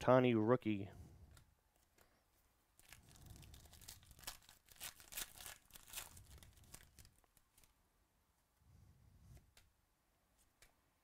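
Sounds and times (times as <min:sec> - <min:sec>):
wrapper tearing and crinkling: 0:02.8 - 0:07.7.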